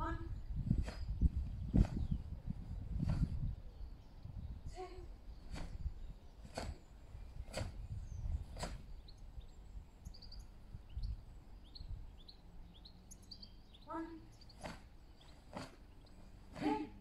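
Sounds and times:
small birds chirping: 0:00.0 - 0:17.0
sharp snap: 0:07.5 - 0:07.8, 0:08.6 - 0:08.8, 0:14.6 - 0:14.9.

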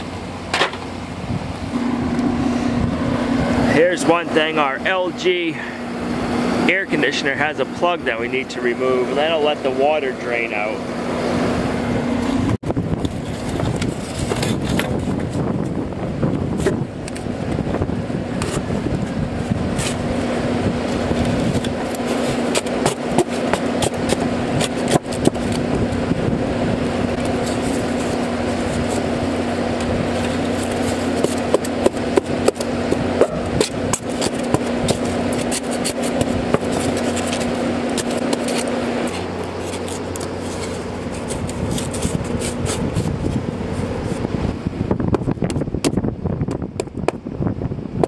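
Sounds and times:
air conditioner humming: 0:00.0 - 0:48.0
foam board scraping and knocking: 0:13.1 - 0:15.8, 0:20.9 - 0:26.0, 0:27.0 - 0:44.3.

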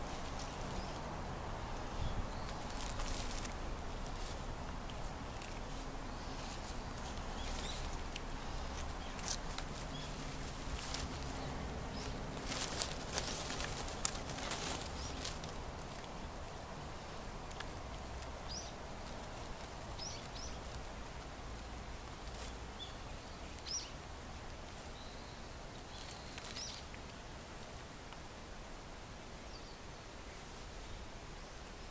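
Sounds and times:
low steady rumble: 0:00.0 - 0:24.8
soft rustles and clicks: 0:00.0 - 0:28.3.

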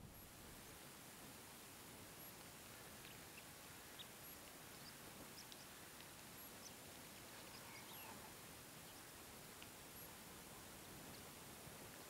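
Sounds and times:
faint outdoor hiss: 0:00.0 - 0:12.0.

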